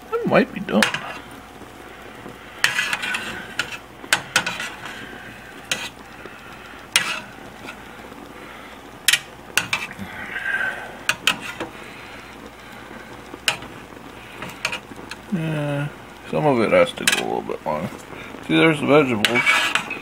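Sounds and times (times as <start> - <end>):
metal tongs clinking on pot: 17.0 - 17.4, 19.1 - 20.0.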